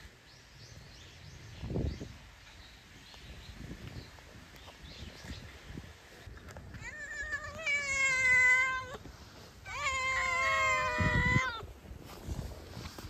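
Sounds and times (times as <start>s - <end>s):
cat meowing: 6.8s - 9.0s, 9.7s - 11.6s.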